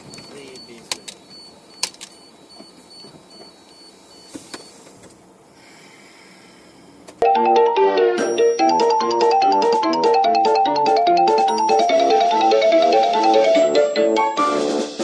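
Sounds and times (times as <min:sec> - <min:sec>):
low vehicle cab noise: 0:00.0 - 0:07.2
faint high beep: 0:00.3 - 0:04.8
chiming music sting: 0:07.3 - 0:14.4.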